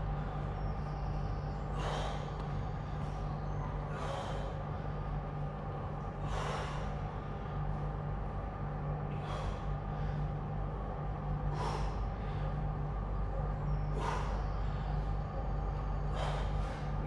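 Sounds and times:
steady low hum: 0.0 - 17.0
man exhaling forcefully: 1.7 - 2.4, 6.2 - 7.0, 11.5 - 12.0, 14.0 - 14.4, 16.1 - 17.0.

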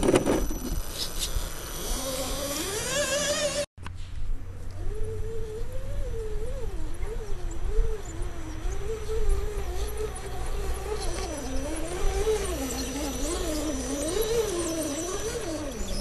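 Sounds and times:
electric motor and gears whining: 0.0 - 3.7, 4.4 - 16.0
gravel crunching: 6.4 - 16.0.

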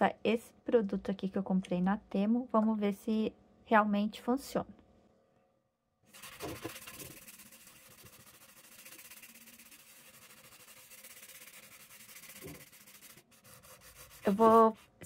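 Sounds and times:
sponge scrubbing metal pan: 6.1 - 15.0.

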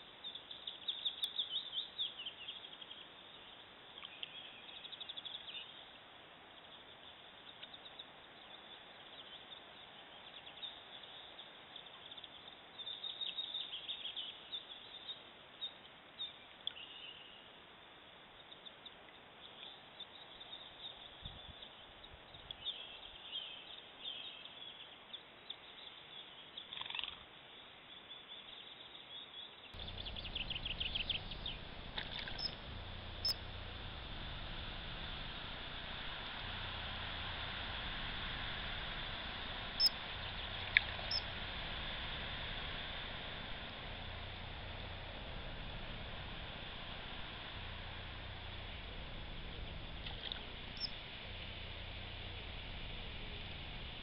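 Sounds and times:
small birds chirping: 28.0 - 54.0
stream water running: 29.8 - 54.0.

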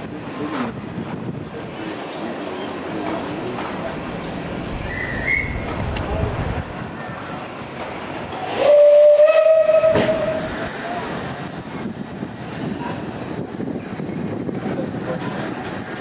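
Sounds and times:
steam locomotive whistle: 8.4 - 10.6.

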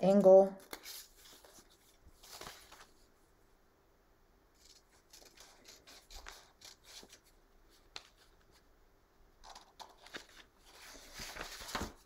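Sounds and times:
paper handling: 0.6 - 3.1, 4.6 - 8.6, 9.4 - 12.0.

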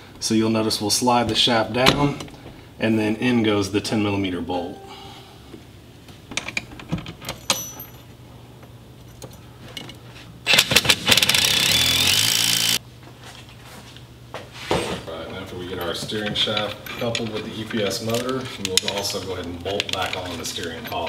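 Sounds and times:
power tool running: 10.5 - 12.8.

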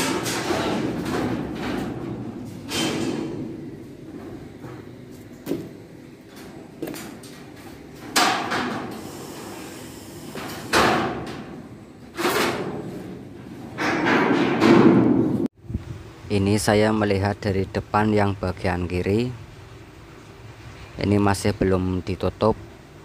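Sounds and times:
heavy bangs on steel hull: 0.0 - 5.0, 13.8 - 15.5.

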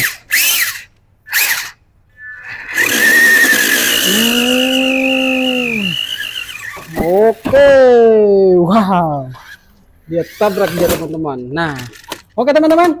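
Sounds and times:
toy car electric motors whining: 0.0 - 7.6, 9.4 - 11.2.

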